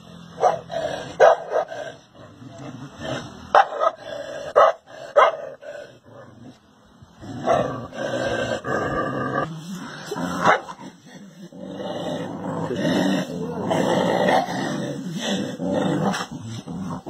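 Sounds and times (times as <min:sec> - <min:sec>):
dogs barking: 0:00.4 - 0:01.8, 0:03.5 - 0:05.6, 0:10.4 - 0:10.8.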